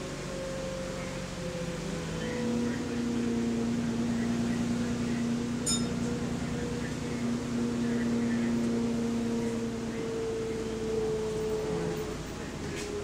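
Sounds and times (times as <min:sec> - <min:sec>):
bus engine drone: 0:00.0 - 0:13.0
stop-request bell ding: 0:05.7 - 0:06.0.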